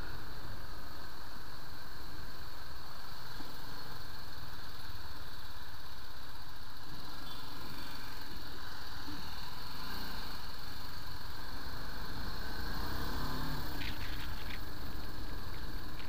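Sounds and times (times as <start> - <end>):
riding noise: 7.4 - 16.0.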